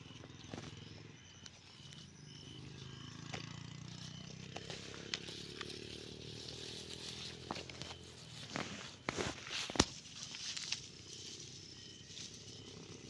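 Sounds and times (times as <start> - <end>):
low engine hum: 0.0 - 13.0
tall grass rustling: 0.4 - 13.0.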